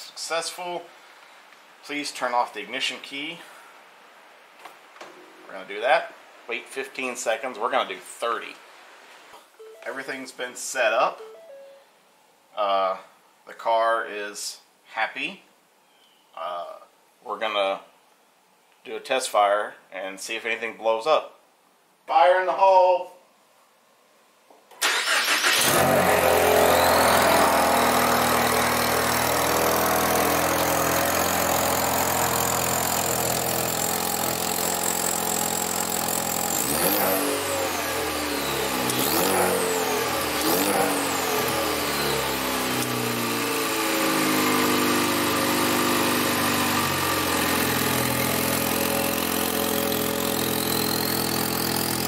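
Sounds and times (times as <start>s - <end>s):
car engine starting and idling: 24.8s - 30.0s
engine revving: 24.8s - 52.0s.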